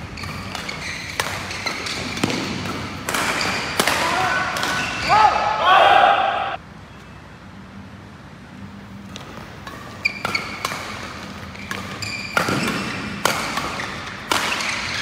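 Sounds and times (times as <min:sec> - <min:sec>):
shoes squeaking on court floor: 0:00.0 - 0:05.6, 0:09.0 - 0:15.0
racket hitting shuttlecock: 0:00.2 - 0:05.6, 0:09.1 - 0:15.0.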